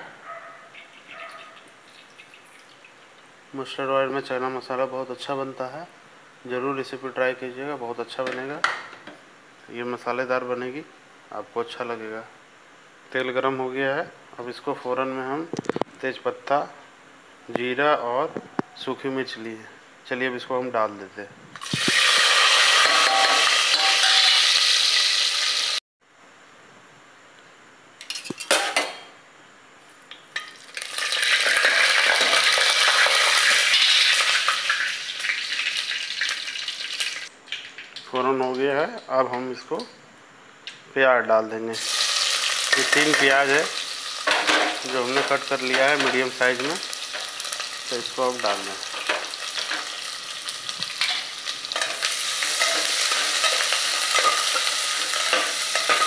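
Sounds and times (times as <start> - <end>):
spices sizzling in hot oil: 0.8 - 3.3, 21.6 - 25.8, 30.4 - 38.1, 41.7 - 56.0.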